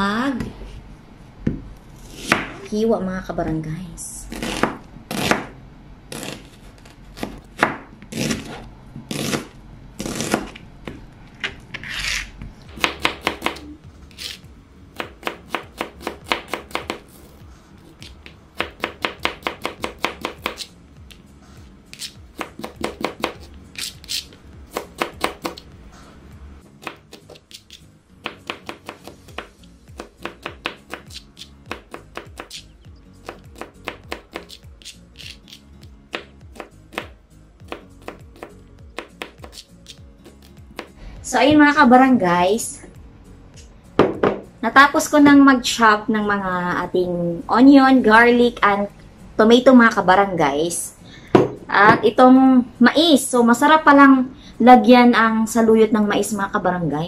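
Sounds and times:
knife chopping on cutting board: 12.7s - 14.4s, 15.0s - 17.1s, 18.0s - 20.7s, 21.9s - 25.7s, 26.8s - 41.0s.

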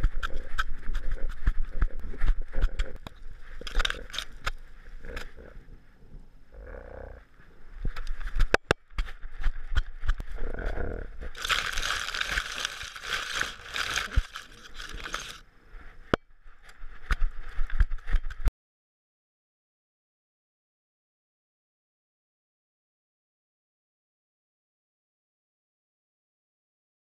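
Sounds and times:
camera rustling through grass: 0.0s - 5.2s, 11.2s - 18.5s.

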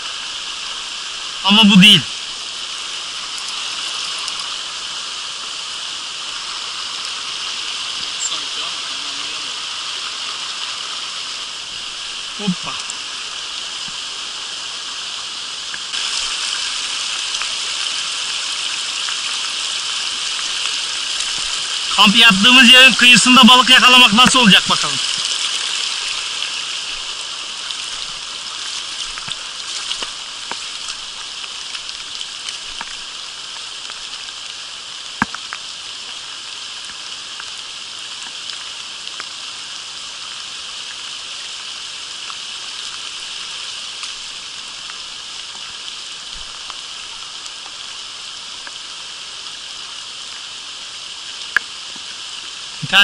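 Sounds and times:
rain falling on stream: 0.0s - 53.0s
water rushing over stones: 0.0s - 53.0s
small ticks: 3.3s - 4.5s.

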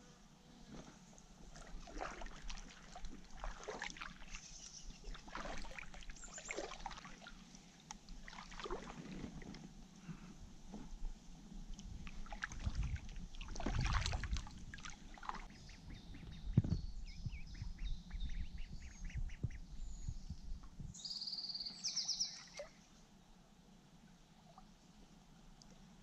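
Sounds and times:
paddle strokes splashing water: 0.7s - 10.2s, 11.7s - 15.8s.

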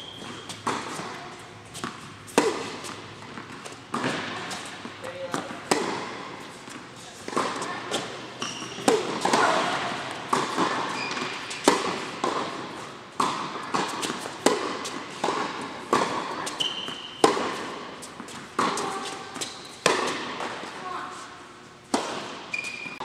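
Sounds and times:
shoe squeaks: 0.0s - 0.6s, 7.8s - 9.8s, 10.8s - 11.7s, 16.5s - 17.2s, 18.8s - 19.8s, 22.5s - 23.0s
tennis balls struck and bouncing: 0.0s - 20.8s, 21.9s - 23.0s.

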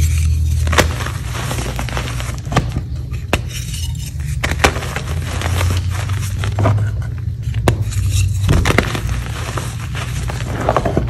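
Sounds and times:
low hum: 0.0s - 11.0s
chalk crumbling and cracking: 7.5s - 11.0s.

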